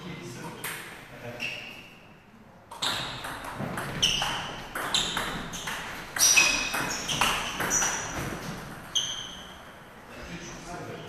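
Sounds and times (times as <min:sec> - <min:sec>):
table tennis ball hits: 0:02.7 - 0:09.8.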